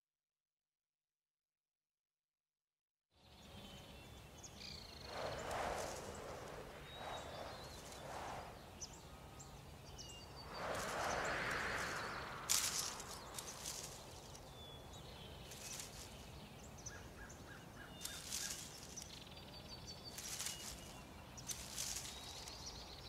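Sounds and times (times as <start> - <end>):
faint bird chirps: 3.2 - 23.0
soft gusts of wind: 3.2 - 23.0
brief crackle: 10.5 - 14.5, 18.0 - 19.2, 20.1 - 22.8.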